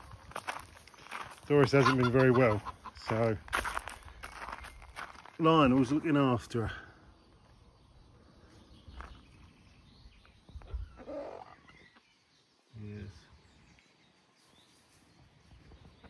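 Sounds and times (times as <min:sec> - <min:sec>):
chickens clucking: 0:01.5 - 0:03.4, 0:10.6 - 0:12.0.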